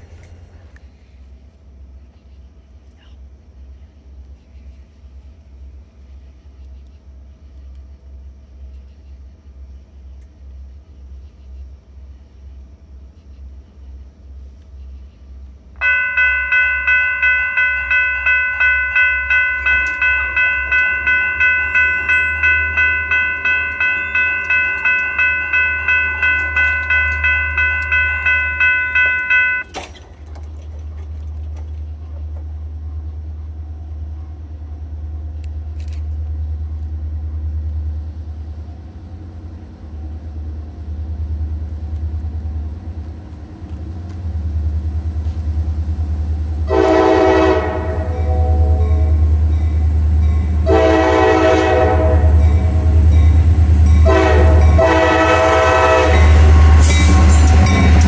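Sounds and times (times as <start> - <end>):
low engine rumble: 0.0 - 58.0
railway bell ringing: 15.8 - 30.0, 46.7 - 58.0.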